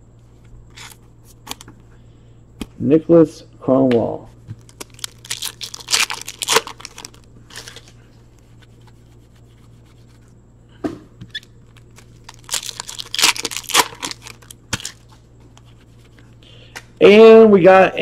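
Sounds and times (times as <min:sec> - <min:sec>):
wrapper crinkling and tearing: 0:04.6 - 0:07.9, 0:11.6 - 0:15.1.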